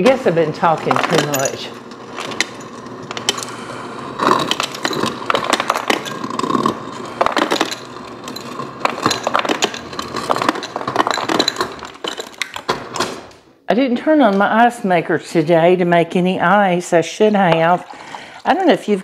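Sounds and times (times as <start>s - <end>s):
ice cubes and glassware clinking: 0.1s - 12.7s.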